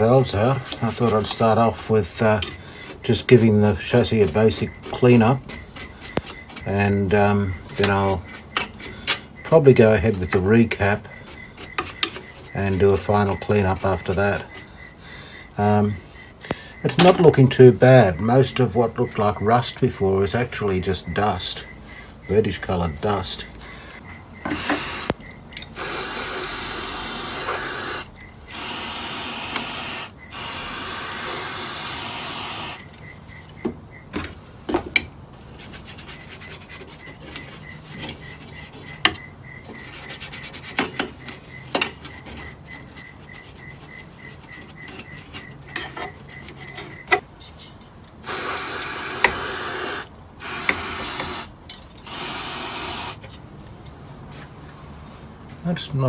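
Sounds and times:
small brush scrubbing metal: 0.0 - 14.7, 35.3 - 51.5
aerosol spray hissing: 24.5 - 25.2, 25.8 - 32.8, 48.2 - 53.2.

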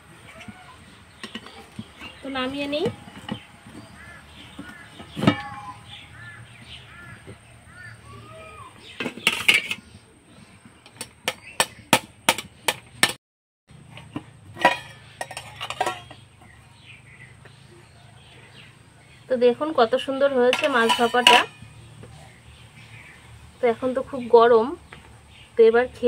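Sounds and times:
steel kitchenware clinking: 14.5 - 16.3, 20.4 - 21.7.

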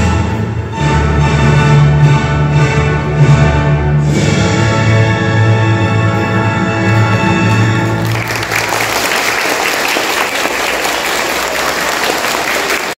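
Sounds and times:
orchestral music: 0.0 - 13.0
children clapping: 7.5 - 13.0.

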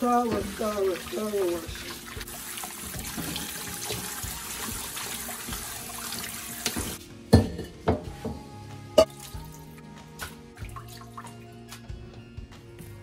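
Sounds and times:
chicken washed by hand: 0.0 - 7.0
tap running into steel bowl: 6.6 - 8.0.

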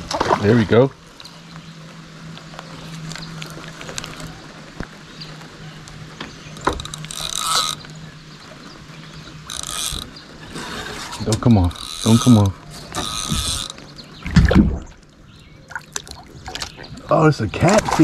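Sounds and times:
buzzing reel ratchet: 6.6 - 7.9, 9.4 - 13.9
fishing reel clicking: 6.6 - 7.9, 9.4 - 13.8.

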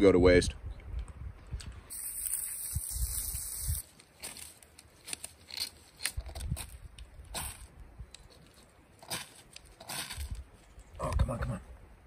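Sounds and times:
dry tinder crackling: 1.6 - 11.2.

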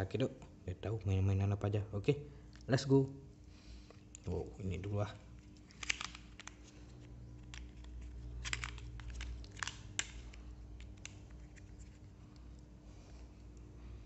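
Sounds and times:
plastic parts clicking and clattering: 4.8 - 12.0.

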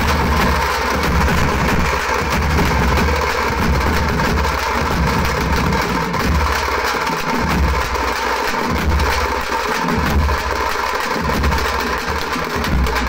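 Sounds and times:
heavy low drum thuds: 0.0 - 6.6
drum band playing: 0.0 - 13.0.

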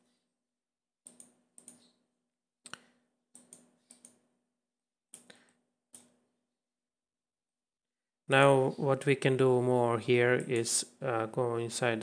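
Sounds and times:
computer mouse clicks: 1.0 - 2.0, 3.4 - 4.2, 5.1 - 6.2.

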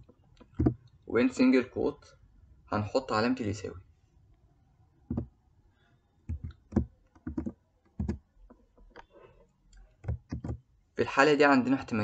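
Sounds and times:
computer keyboard typing: 6.3 - 8.2, 10.0 - 10.6.

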